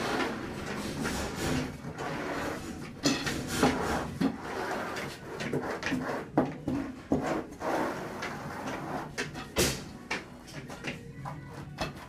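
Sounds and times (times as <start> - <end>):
roller scraping on floor: 0.0 - 12.0.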